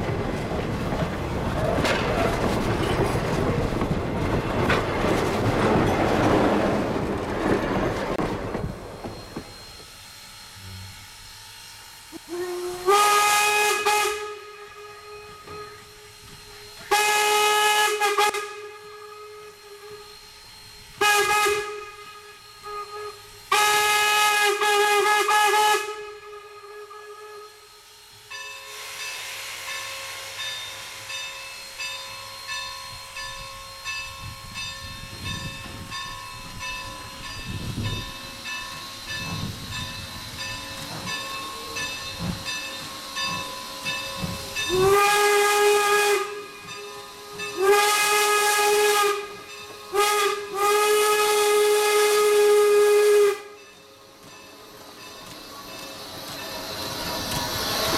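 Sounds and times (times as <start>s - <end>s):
low steam chuffs: 0.0s - 57.9s
steam whistle blasts: 9.5s - 36.0s, 37.5s - 54.2s.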